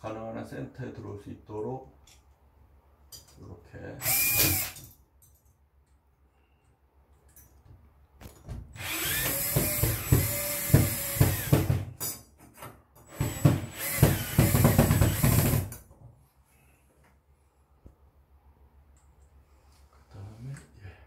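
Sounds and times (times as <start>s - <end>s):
cordless drill drilling metal: 4.0s - 4.8s, 8.8s - 11.7s, 13.1s - 15.7s.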